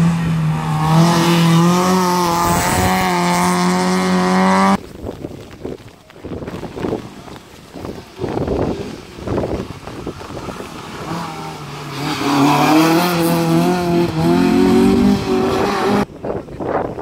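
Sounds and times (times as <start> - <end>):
rally car engine revving: 0.0 - 4.8, 8.3 - 16.1
wind buffeting microphone: 2.1 - 11.6, 12.8 - 17.0.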